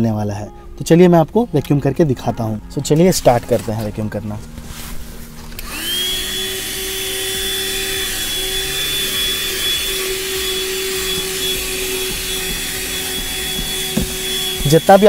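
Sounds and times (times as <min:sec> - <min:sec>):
handheld vacuum cleaner running: 0:05.5 - 0:15.0.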